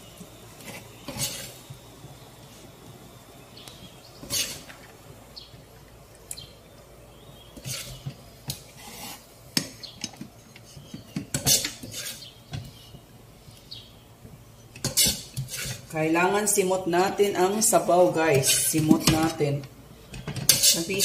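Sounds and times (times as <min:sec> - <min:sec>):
metal spoon scraping a pot: 0:00.6 - 0:01.6, 0:04.2 - 0:04.7, 0:07.6 - 0:09.2, 0:10.6 - 0:12.3, 0:14.8 - 0:15.9, 0:18.3 - 0:19.4, 0:20.3 - 0:21.0.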